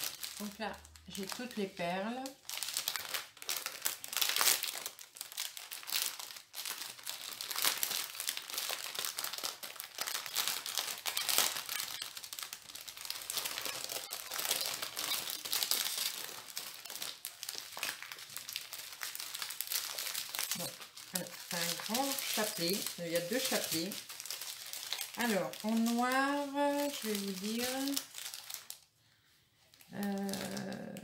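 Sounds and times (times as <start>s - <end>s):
plastic bags crinkling: 0.0s - 28.9s, 29.7s - 31.0s.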